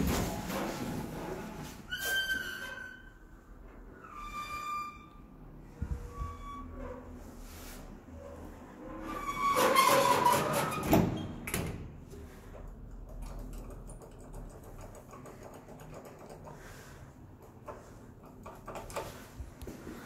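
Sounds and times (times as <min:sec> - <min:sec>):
lift door squealing: 0:01.9 - 0:03.2, 0:09.0 - 0:11.4.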